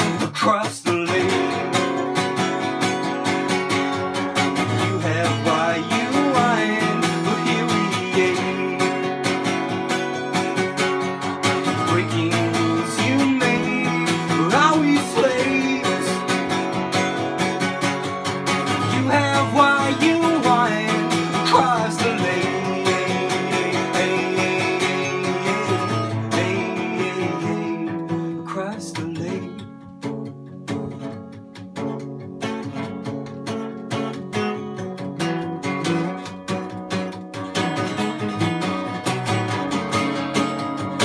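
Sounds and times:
acoustic guitar strumming: 0.0 - 41.0
wordless vocal phrases: 11.9 - 16.2, 18.9 - 25.7.

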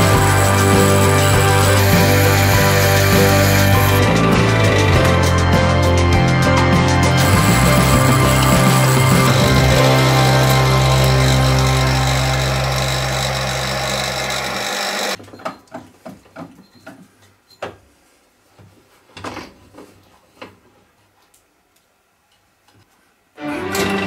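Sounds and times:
drill press motor running: 0.0 - 5.2, 7.1 - 15.2.

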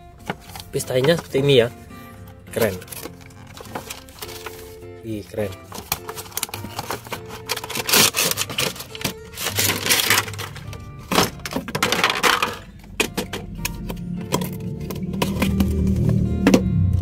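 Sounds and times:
background music: 0.0 - 17.0
packaging crinkling: 2.5 - 4.8, 5.4 - 15.8.

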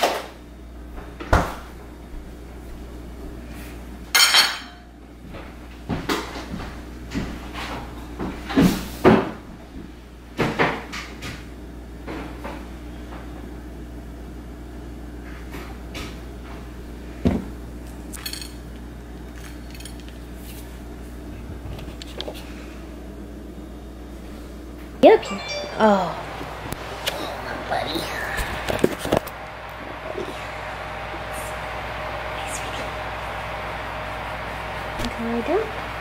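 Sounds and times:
low steady hum: 25.0 - 35.7.

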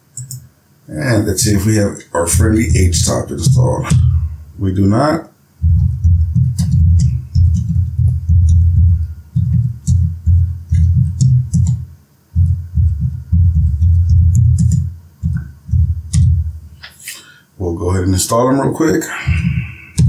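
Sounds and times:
computer keyboard typing: 0.2 - 0.4, 5.6 - 16.4.

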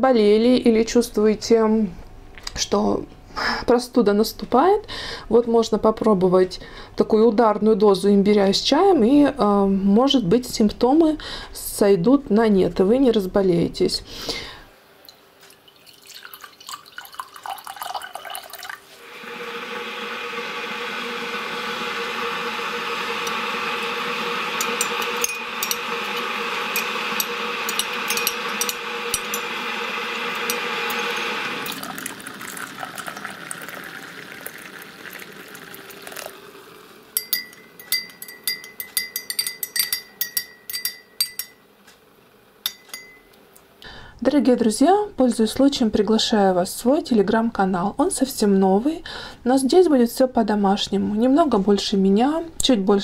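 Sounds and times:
water pouring into glass mug: 15.5 - 20.0, 22.0 - 38.1
metal spoon clinking against glass: 24.6 - 29.6, 37.2 - 41.6, 42.6 - 43.4.

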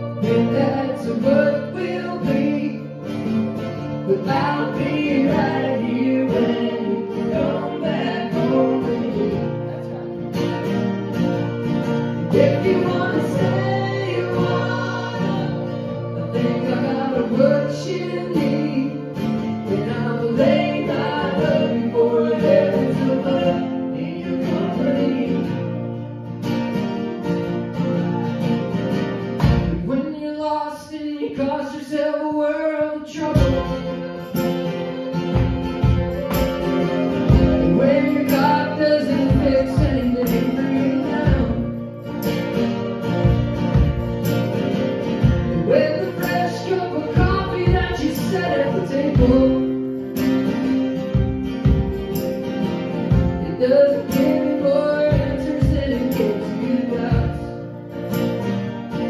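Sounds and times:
voices singing: 0.0 - 26.0, 30.7 - 58.3
mandolin: 0.0 - 59.0
strummed acoustic guitars: 0.0 - 59.0
drums: 29.4 - 29.9, 33.4 - 34.0, 35.2 - 38.5, 39.2 - 40.6, 41.2 - 46.4, 47.1 - 48.3, 49.1 - 54.4, 55.1 - 56.4, 57.1 - 57.5
drum kit steady beat: 35.4 - 38.5, 43.2 - 44.5, 45.2 - 45.7, 51.1 - 52.4, 53.1 - 53.6.

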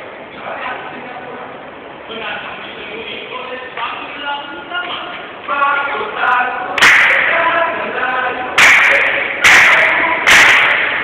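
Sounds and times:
unison hand claps: 6.8 - 7.4, 8.6 - 11.0.

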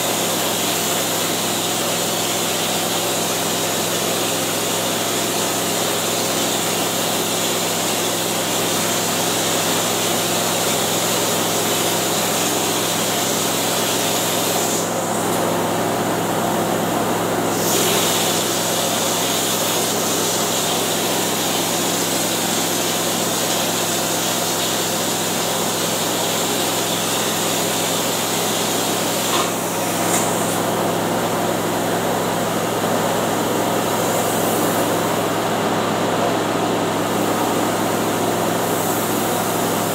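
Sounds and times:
air compressor motor hum: 0.0 - 39.9
spray gun hissing: 0.1 - 16.3, 17.5 - 30.9.

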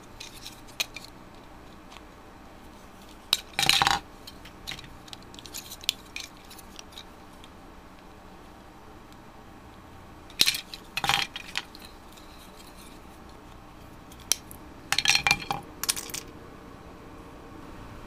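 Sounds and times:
plastic parts clattering on table: 3.3 - 7.1, 10.3 - 13.0, 14.1 - 16.3.

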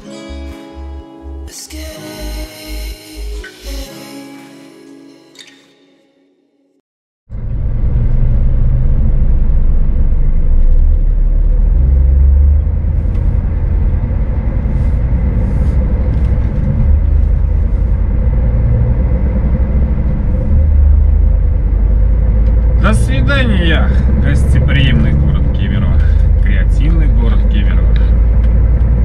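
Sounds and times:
truck engine and road rumble: 7.3 - 29.0.

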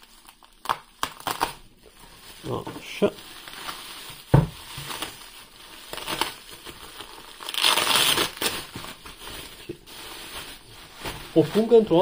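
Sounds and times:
bubble wrap and plastic crinkling: 0.0 - 12.0
thump: 4.3 - 4.6.

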